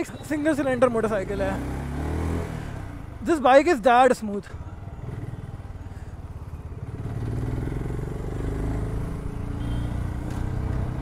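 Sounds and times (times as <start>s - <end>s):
motorcycle engine running: 4.7s - 11.0s.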